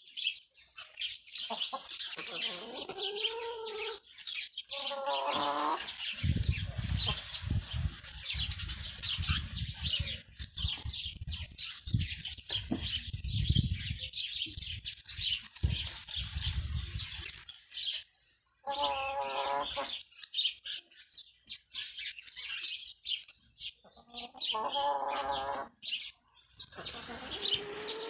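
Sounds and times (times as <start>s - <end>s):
birds chirping: 0.0s - 28.0s
hen clucking: 1.4s - 4.1s, 4.7s - 8.0s, 18.6s - 20.0s, 23.8s - 25.8s, 26.6s - 28.0s.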